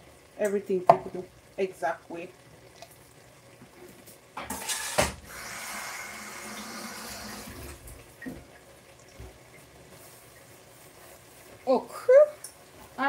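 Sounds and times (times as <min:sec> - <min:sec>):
tap water splashing into sink: 0:04.4 - 0:05.3.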